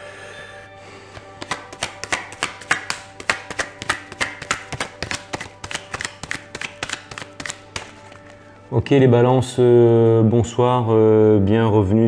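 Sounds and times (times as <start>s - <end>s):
faint background music: 0.0s - 12.0s
cards being shuffled: 1.1s - 8.6s.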